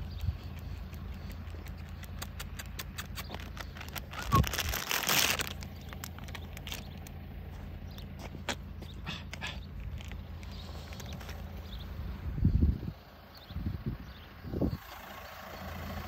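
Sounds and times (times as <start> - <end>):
light scattered ticks: 0.0 - 4.3
steady low rumble: 0.0 - 15.2
plastic snack bag crinkling: 0.6 - 7.2, 9.8 - 11.4.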